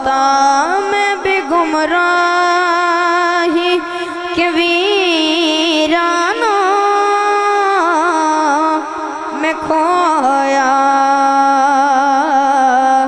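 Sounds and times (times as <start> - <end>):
boy singing unaccompanied: 0.0 - 13.0.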